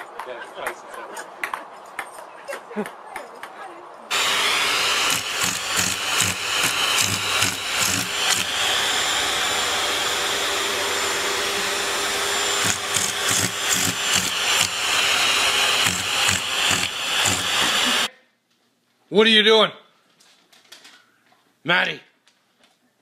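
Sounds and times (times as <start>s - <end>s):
vacuum cleaner running: 4.1s - 18.1s.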